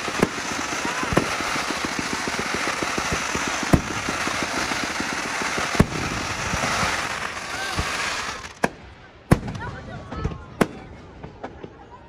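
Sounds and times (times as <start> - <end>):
firework bangs: 0.0 - 12.0
fireworks crackling: 0.0 - 12.0.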